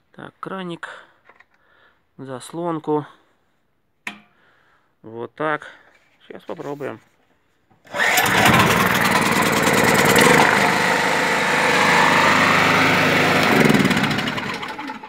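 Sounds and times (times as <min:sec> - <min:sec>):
generator engine running: 0:07.9 - 0:15.0
recoil starter pull: 0:07.9 - 0:15.0.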